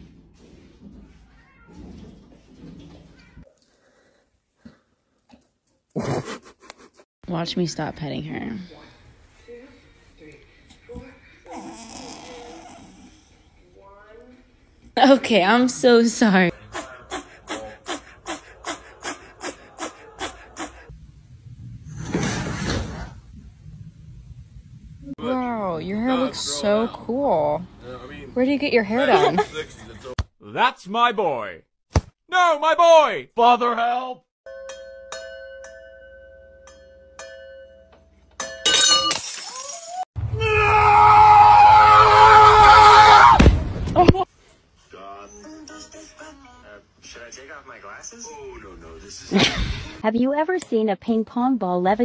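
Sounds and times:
sharp crash: 21.9s - 23.2s
glass bottles clinking: 34.5s - 40.0s.

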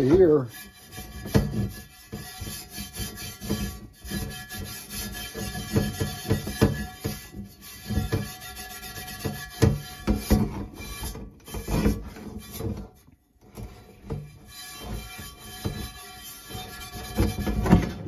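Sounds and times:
pad scrubbing skillet: 0.0s - 18.0s.

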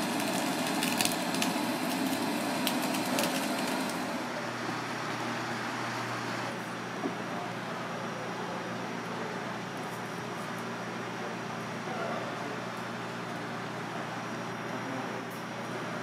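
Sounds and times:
blowtorch hissing: 0.0s - 6.8s
searing fish crackling: 0.0s - 6.9s.

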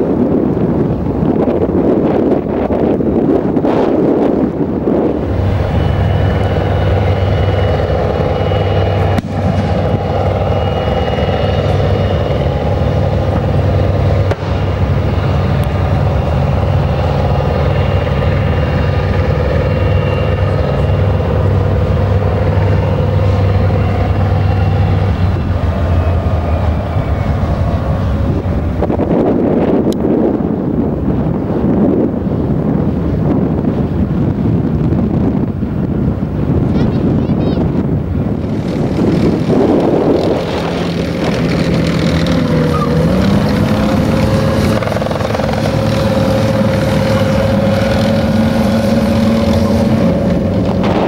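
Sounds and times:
steady high whine: 0.0s - 36.7s, 37.6s - 51.0s
heavy vehicle engine droning: 0.0s - 51.0s.

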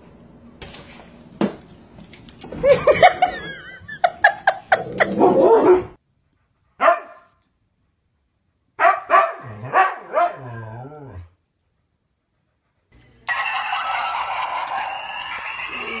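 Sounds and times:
dog barking: 6.8s - 7.3s, 8.8s - 10.6s
dog howling barks: 8.8s - 11.2s.

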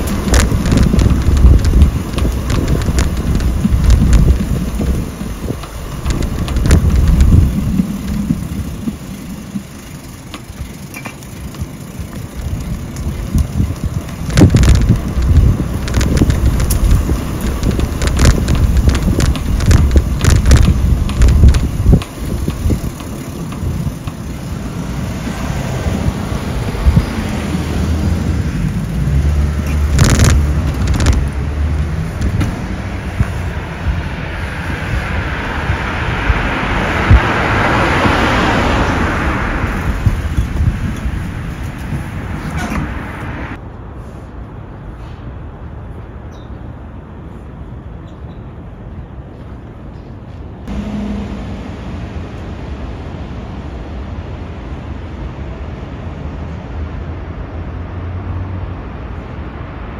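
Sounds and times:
heavy low rumble: 0.0s - 10.8s
sharp clicks and knocks: 0.0s - 24.3s, 29.5s - 31.4s
cars going by: 0.0s - 59.9s.

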